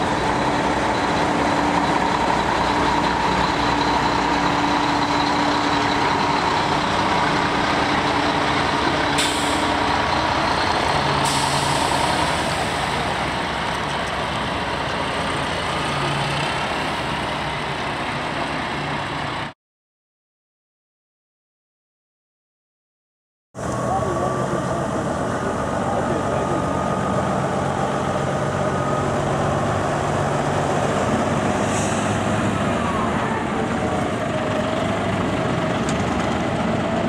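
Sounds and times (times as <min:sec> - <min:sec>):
truck diesel engine running: 0:00.0 - 0:19.5, 0:23.6 - 0:37.0
air brake hisses: 0:09.2 - 0:09.8, 0:11.2 - 0:12.9, 0:31.6 - 0:32.3.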